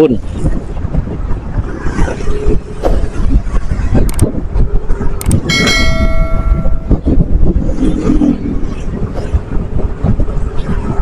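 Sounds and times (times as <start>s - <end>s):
wind buffeting: 0.0s - 11.0s
bell-like ringing: 5.4s - 7.2s.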